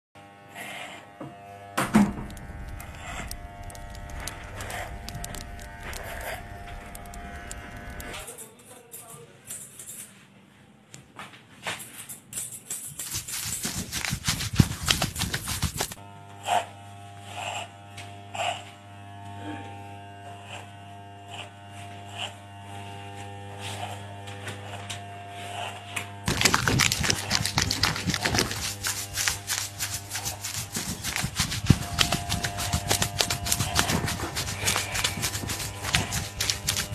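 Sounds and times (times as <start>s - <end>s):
steady electric buzz: 0.2s - 8.2s, 13.0s - 36.9s
lather squelching: 13.0s - 16.0s, 26.3s - 36.9s.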